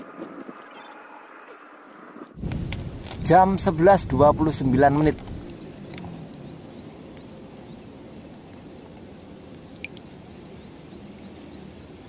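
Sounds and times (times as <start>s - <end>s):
faint outdoor background noise: 0.0s - 12.0s
insect chirps: 4.8s - 12.0s.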